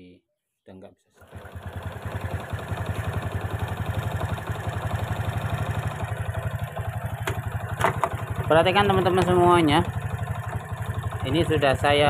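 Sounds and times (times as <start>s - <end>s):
motorcycle engine idling: 1.2s - 12.0s.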